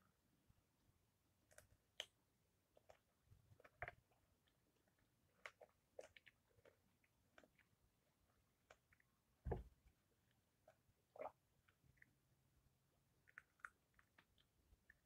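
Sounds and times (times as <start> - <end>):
faint chewing: 1.5 - 9.2, 13.2 - 15.0.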